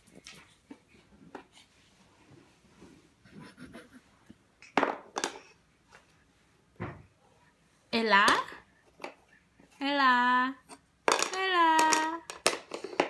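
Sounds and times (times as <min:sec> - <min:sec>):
toy puzzle piece rustling and tapping: 0:11.0 - 0:13.0.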